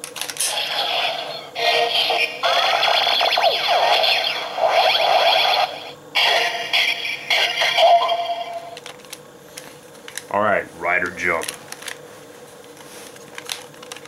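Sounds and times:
toy electronic sound effects: 0.5s - 8.8s.

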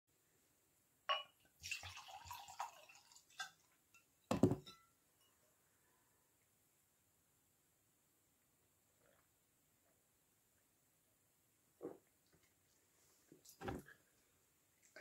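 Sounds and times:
wine pouring into glass: 1.6s - 3.6s.

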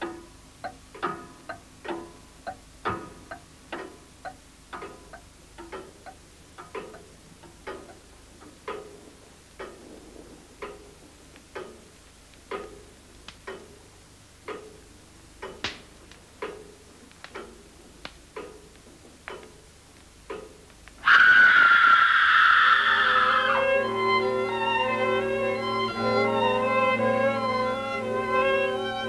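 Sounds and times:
clock ticking: 0.0s - 21.0s
loud string music: 23.2s - 29.0s.

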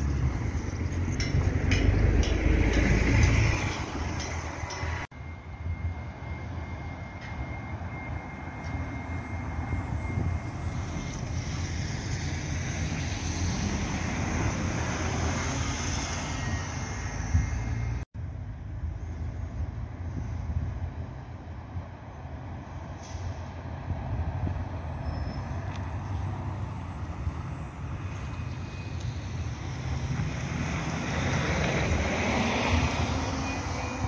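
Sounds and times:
buses driving past: 0.0s - 34.0s.

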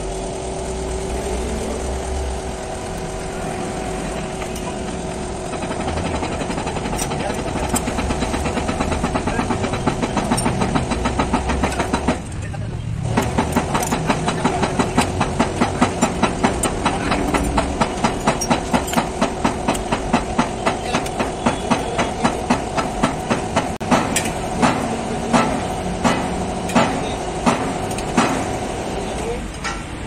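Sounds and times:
hydraulic press humming: 0.0s - 30.0s
rapid regular clicking: 2.4s - 29.7s
spaced knocks: 5.7s - 12.2s.

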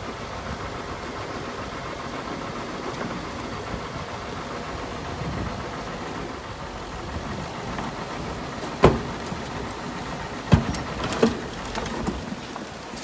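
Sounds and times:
heavy machinery rumbling: 0.0s - 13.0s.

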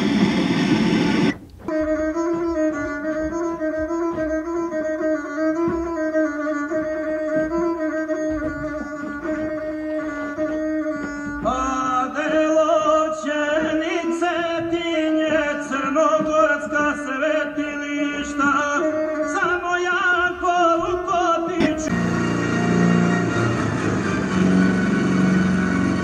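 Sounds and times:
low rough sound: 0.0s - 2.6s
held drone: 0.0s - 4.2s, 21.9s - 26.0s
ornamented wavering melody: 21.8s - 26.0s.

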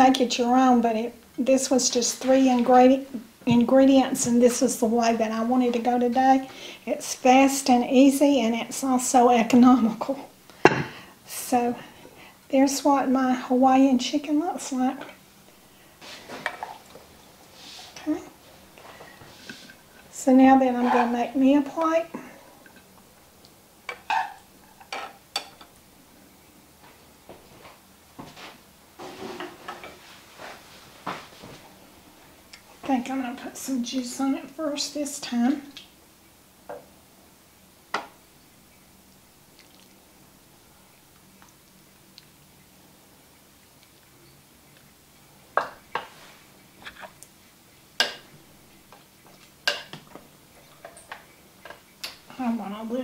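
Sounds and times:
spoon clinking and scraping on dishes: 23.9s - 25.8s.

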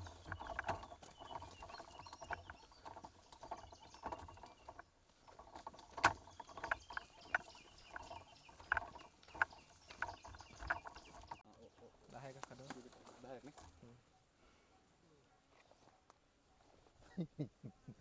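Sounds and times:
footsteps in dry undergrowth: 0.0s - 13.8s.

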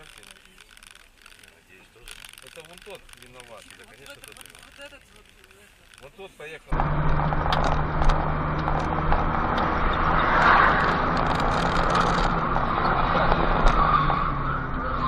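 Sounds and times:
car engine hum and road noise: 6.7s - 15.0s.

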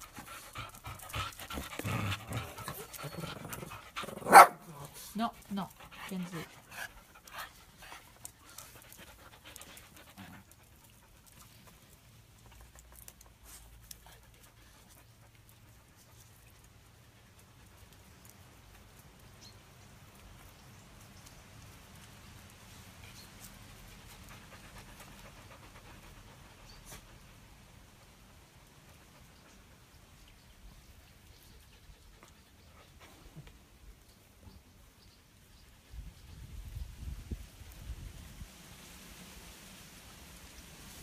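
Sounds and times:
dog panting: 0.0s - 18.0s, 23.5s - 30.0s.

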